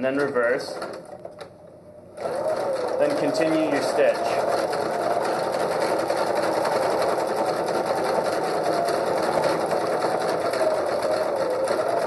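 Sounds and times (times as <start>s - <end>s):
electric sewing machine running: 0.2s - 1.5s, 2.2s - 12.0s.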